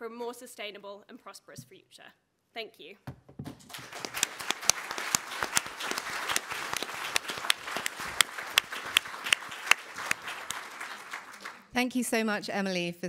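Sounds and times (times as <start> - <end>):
crowd clapping: 3.5 - 11.8.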